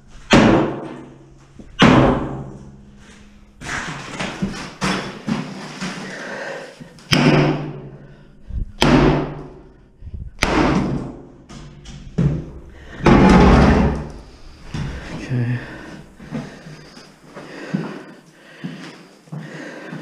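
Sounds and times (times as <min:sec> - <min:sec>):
hammer hitting cast iron bathtub: 0:00.3 - 0:01.2, 0:01.8 - 0:02.7, 0:07.1 - 0:08.0, 0:08.8 - 0:09.7, 0:10.4 - 0:14.2.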